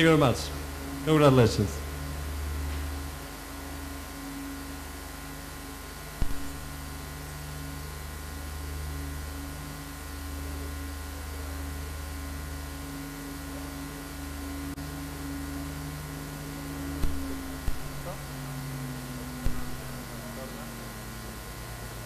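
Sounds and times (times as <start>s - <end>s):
low hum: 1.7s - 21.6s
brief knock: 6.2s - 6.6s, 19.4s - 19.9s.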